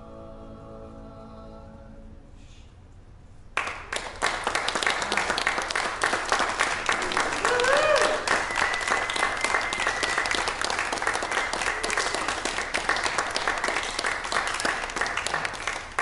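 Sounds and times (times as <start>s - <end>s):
audience applauding: 3.6s - 16.0s.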